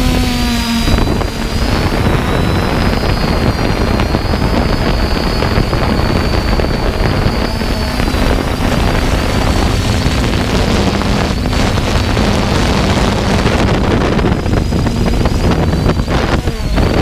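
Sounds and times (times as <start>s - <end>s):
drone propellers whining: 0.0s - 17.0s
wind buffeting microphone: 0.0s - 17.0s.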